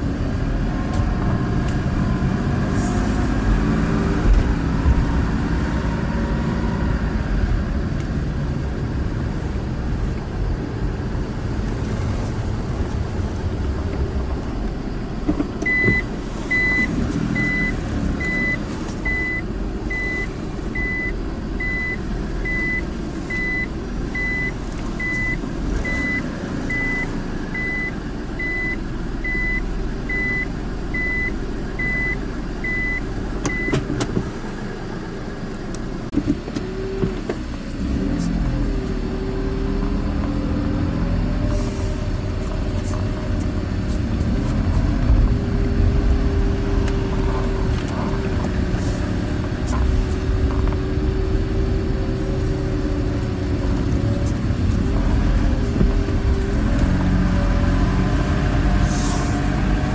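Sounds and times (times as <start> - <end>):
car engine and road noise: 0.0 - 59.9
reverse warning beep: 15.6 - 33.8.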